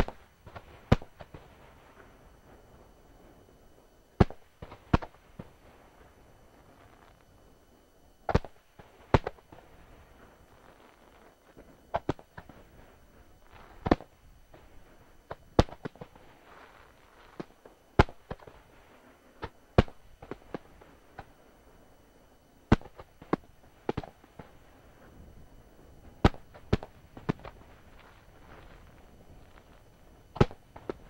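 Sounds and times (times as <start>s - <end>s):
firework shells booming: 0.0s - 2.1s, 4.2s - 6.1s, 8.3s - 10.3s, 13.5s - 16.5s, 17.3s - 18.6s, 19.4s - 21.3s, 22.7s - 24.6s, 26.0s - 31.0s
small firework cracks: 0.0s - 2.1s, 4.2s - 6.1s, 8.3s - 12.8s, 13.5s - 14.7s, 15.3s - 18.8s, 19.4s - 21.3s, 22.7s - 24.6s, 26.0s - 31.0s.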